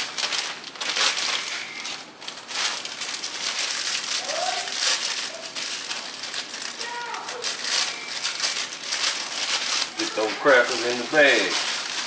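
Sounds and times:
paper wrappers rustling: 0.0 - 12.0
plastic bag crinkling: 0.0 - 12.0.

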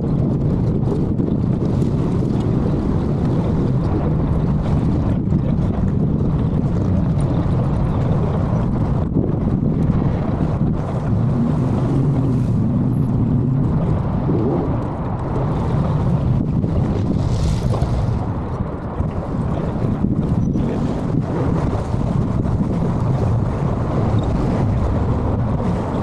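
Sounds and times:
wind rumble on microphone: 0.0 - 26.0.

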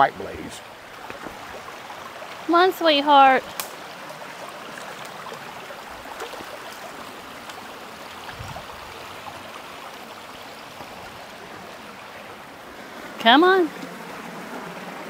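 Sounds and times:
creek water babbling over rocks: 0.0 - 15.0.

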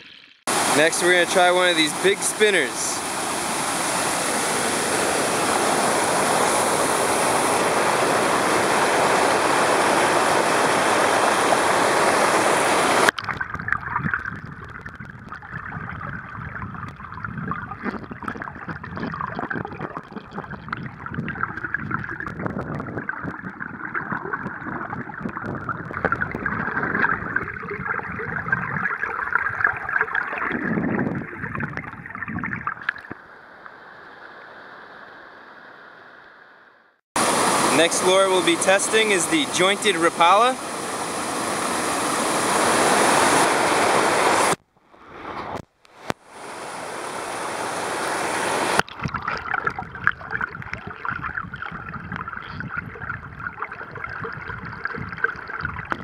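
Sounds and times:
underwater gurgling and crackling: 0.0 - 1.3, 11.2 - 33.8, 48.0 - 56.0
water rushing: 0.0 - 34.1, 37.2 - 56.0.

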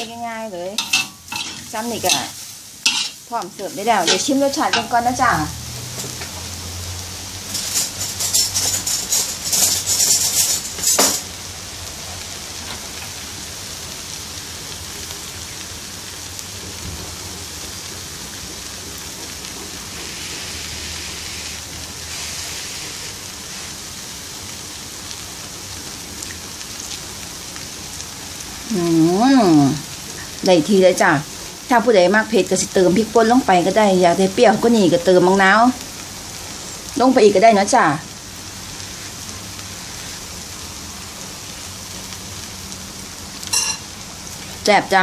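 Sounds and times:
noodles sizzling in a wok: 0.0 - 45.0
metal spatula scraping: 0.8 - 3.2, 7.5 - 11.2, 20.0 - 23.7.

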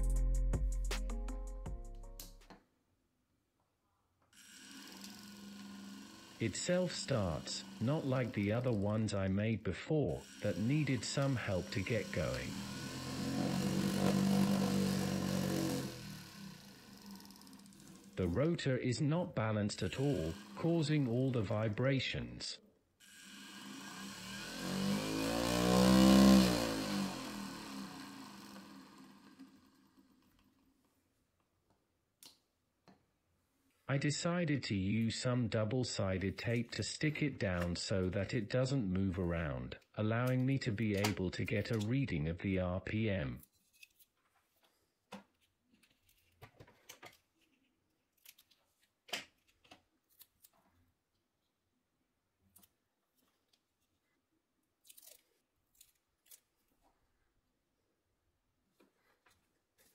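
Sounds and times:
motor vibrating: 4.4 - 8.8, 10.2 - 18.4, 19.8 - 20.9, 23.0 - 30.3
electric motor hum: 4.4 - 9.1, 10.1 - 18.5, 19.7 - 21.4, 23.0 - 30.3
tape rustling and clicking: 43.4 - 50.8, 54.8 - 56.9.

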